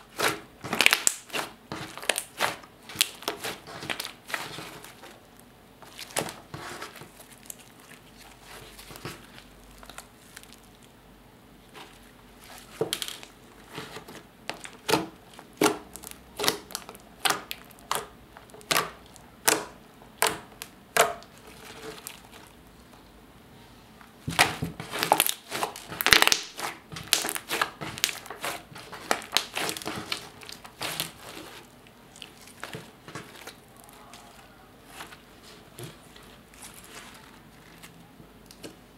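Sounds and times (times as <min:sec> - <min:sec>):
slime popping and crackling: 0:00.0 - 0:10.9, 0:11.7 - 0:22.6, 0:24.2 - 0:35.8.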